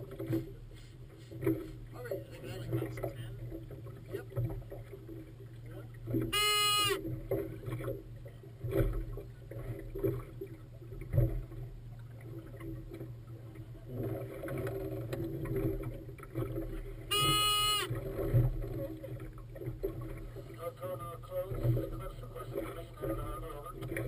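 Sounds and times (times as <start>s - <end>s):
water noise: 0.0s - 24.0s
wind: 0.0s - 24.0s
air horn blast: 6.3s - 7.1s, 17.1s - 17.9s.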